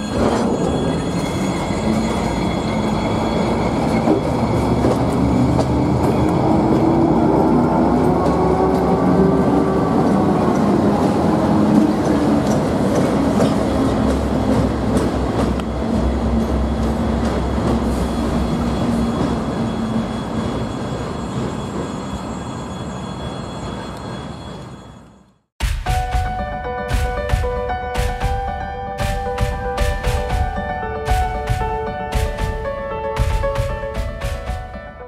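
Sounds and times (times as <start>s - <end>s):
diesel locomotive engine drone: 0.0s - 25.4s.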